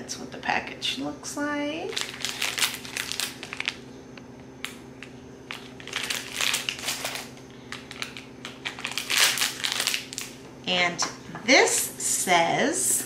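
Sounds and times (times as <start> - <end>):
plastic wrapper crinkling: 1.9 - 3.9, 4.6 - 10.4.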